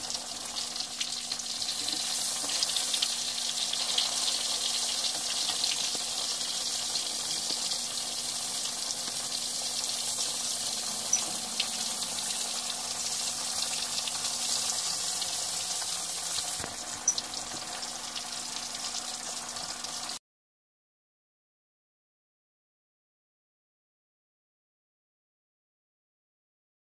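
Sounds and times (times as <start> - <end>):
meat sizzling in hot oil: 0.0 - 20.2.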